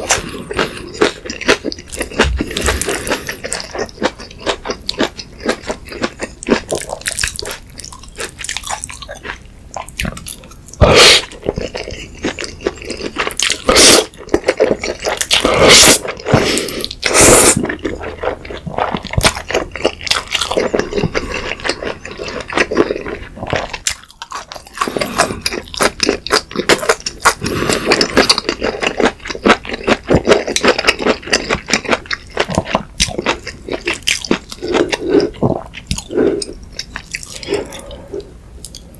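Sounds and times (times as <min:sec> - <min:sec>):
chewing: 0:00.0 - 0:38.9
loud slurping: 0:15.4 - 0:17.7.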